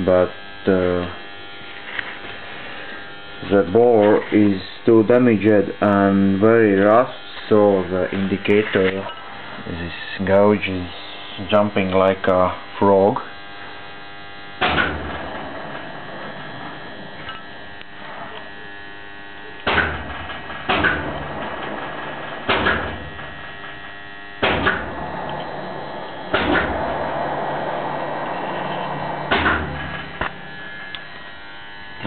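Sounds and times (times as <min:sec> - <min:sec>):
machine electric hum: 0:00.0 - 0:32.0
surge of machine noise: 0:14.5 - 0:32.0
sharp machine clunk: 0:14.6 - 0:15.9, 0:19.6 - 0:23.4, 0:24.4 - 0:30.5.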